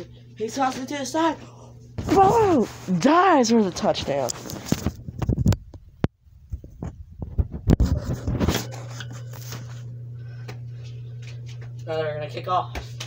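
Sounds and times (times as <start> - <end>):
steady low hum: 0.0 - 13.0
camera handling rustles: 4.3 - 5.7.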